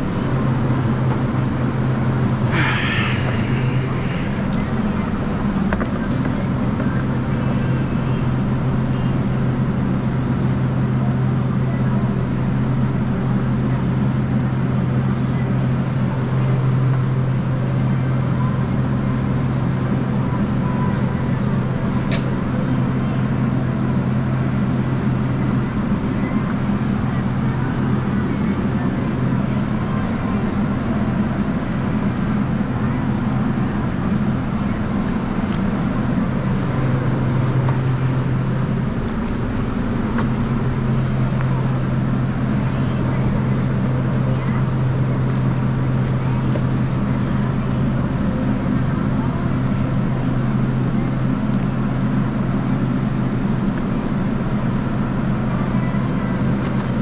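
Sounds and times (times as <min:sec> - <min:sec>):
refrigeration unit humming: 0:13.5 - 0:56.9.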